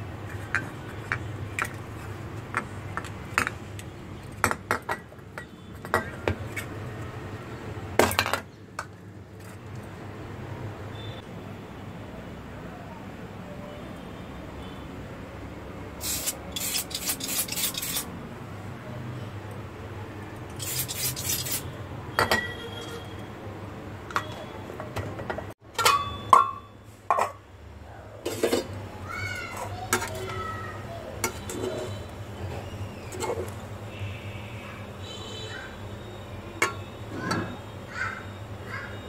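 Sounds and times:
aerosol can spraying: 16.0s - 18.1s.

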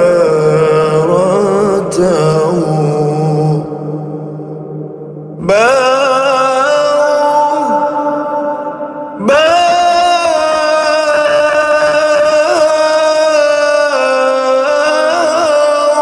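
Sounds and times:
man singing held vowel: 0.0s - 4.1s, 5.4s - 16.0s.

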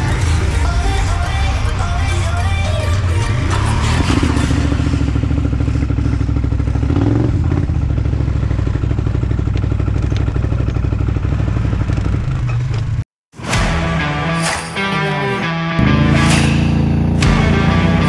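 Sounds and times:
quad bike engine under load: 3.1s - 13.0s, 15.8s - 18.0s.

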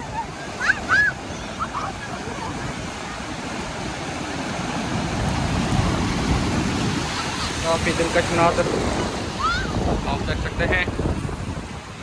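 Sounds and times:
sea surf washing in: 0.0s - 12.0s
child crying out: 0.6s - 1.9s, 9.4s - 9.8s.

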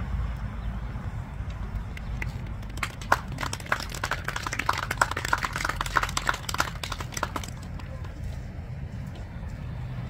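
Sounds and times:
small group applauding: 1.9s - 8.2s.

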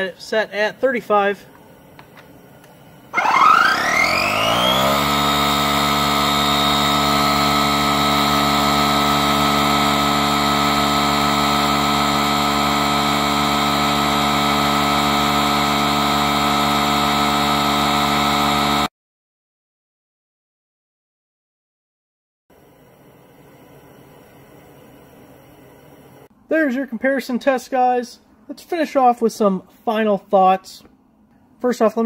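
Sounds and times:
tire inflator compressor running: 1.5s - 18.9s.

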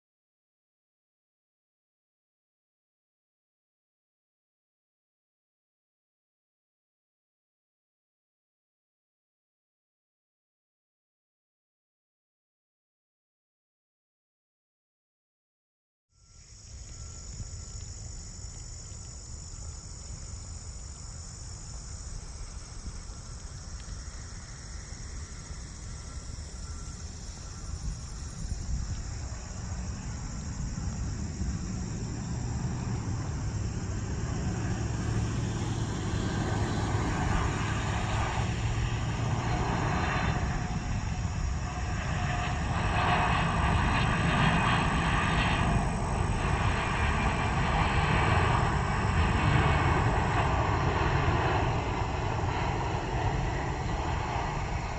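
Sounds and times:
insect chirring: 16.2s - 54.9s
jet engines rumbling and whining: 16.4s - 54.9s.

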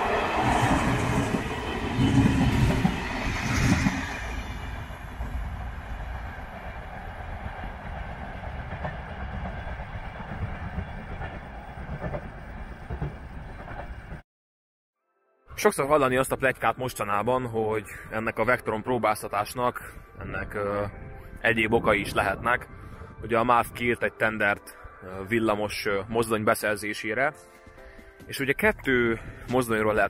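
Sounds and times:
train rumble: 0.0s - 14.2s.

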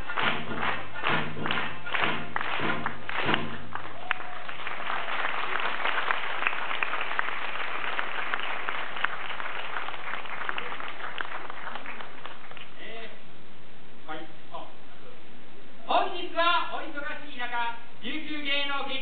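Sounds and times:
drum and song music: 0.0s - 4.0s
audience applauding: 0.0s - 12.8s.

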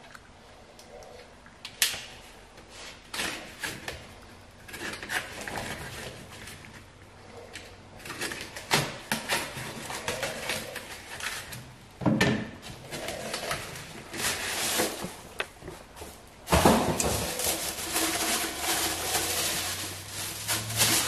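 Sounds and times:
plastic wrap crinkling: 12.9s - 21.0s.

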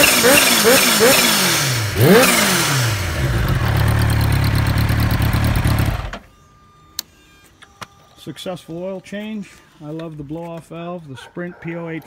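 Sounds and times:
motorcycle engine revving and idling: 0.0s - 6.2s.

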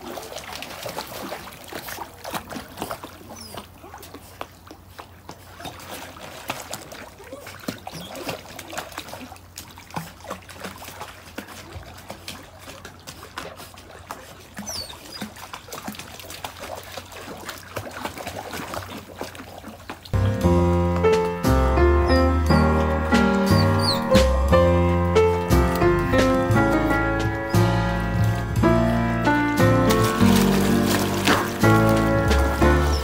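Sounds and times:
water lapping and splashing: 0.0s - 20.3s, 21.0s - 33.0s
loud music: 20.2s - 33.0s.

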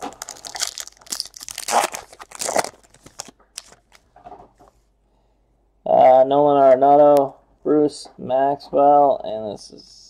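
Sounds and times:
foil wrapper tearing and crinkling: 0.0s - 4.0s.

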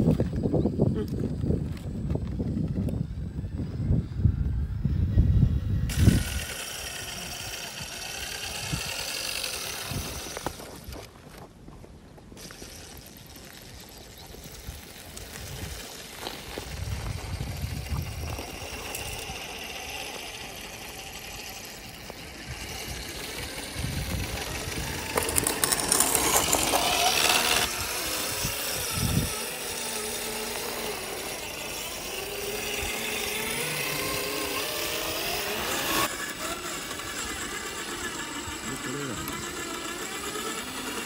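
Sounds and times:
electric motor whining: 1.0s - 11.1s, 12.4s - 41.0s
scraping on rock: 12.3s - 32.0s.

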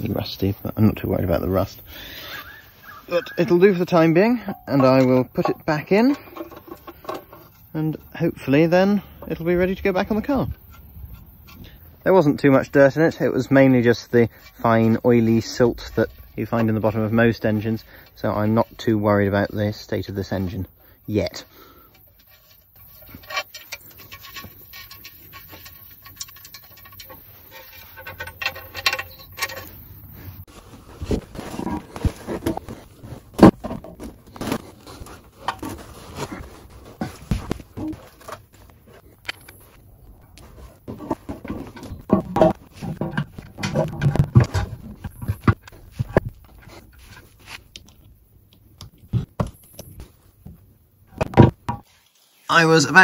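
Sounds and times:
metal plate clinking and scraping: 2.0s - 18.8s, 19.6s - 30.5s.

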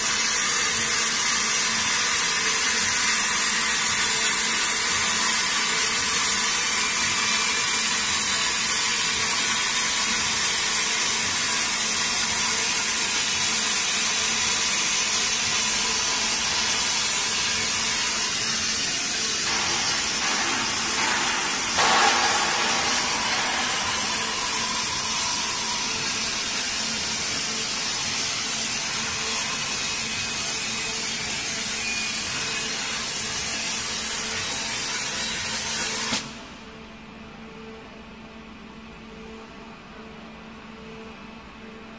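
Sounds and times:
loud hiss of waterjet: 14.6s - 28.5s
low machine hum: 14.8s - 28.4s.

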